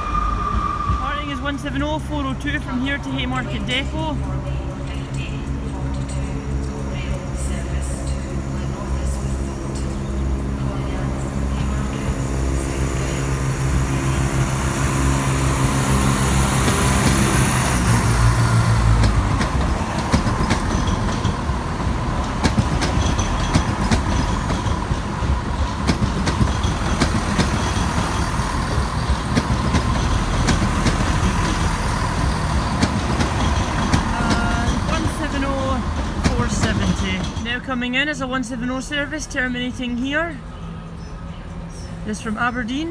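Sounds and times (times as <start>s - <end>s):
diesel engines droning: 0.0s - 42.9s
train wheels clicking over rail joints: 14.9s - 37.7s.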